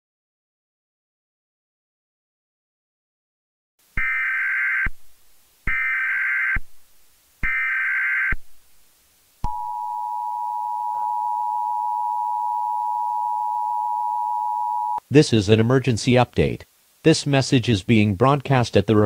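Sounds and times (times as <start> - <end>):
two-tone attention signal: 9.5 - 15.0.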